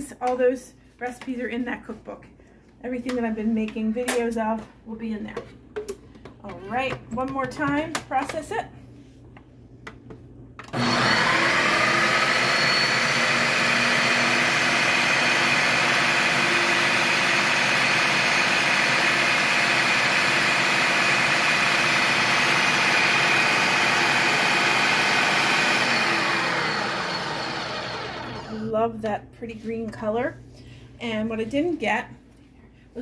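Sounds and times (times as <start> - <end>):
food processor motor whining: 10.7 - 28.7.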